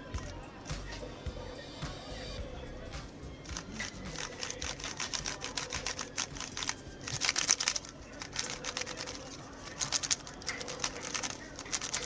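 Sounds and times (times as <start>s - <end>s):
speed cube plastic clicks and rattles: 3.6s - 12.0s.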